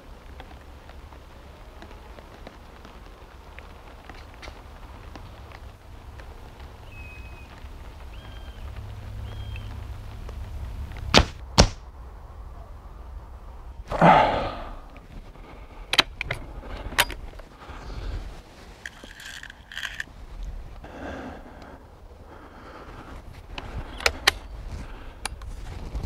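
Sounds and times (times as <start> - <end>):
air rifle shots: 11.2 - 11.8
air rifle clicks: 15.8 - 17.2, 18.8 - 20.1, 23.5 - 24.6
pellets clattering in a tin: 18.9 - 20.0.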